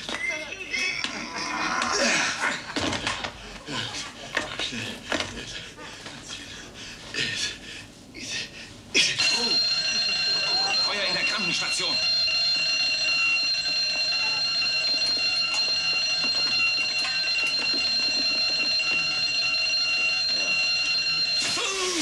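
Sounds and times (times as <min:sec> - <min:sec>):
fire alarm ringing: 0:09.2 - 0:22.0.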